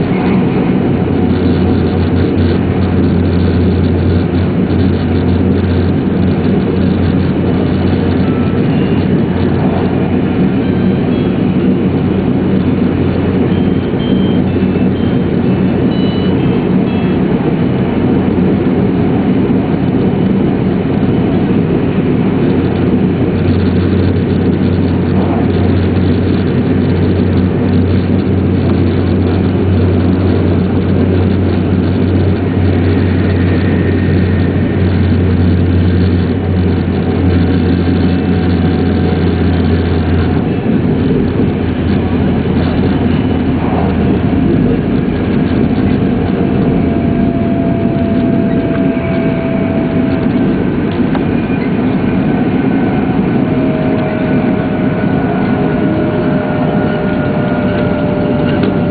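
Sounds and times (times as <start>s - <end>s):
low hum: 0.0s - 58.9s
train wheels and air rumble: 0.0s - 58.9s
faint falling whining tones: 41.4s - 58.9s.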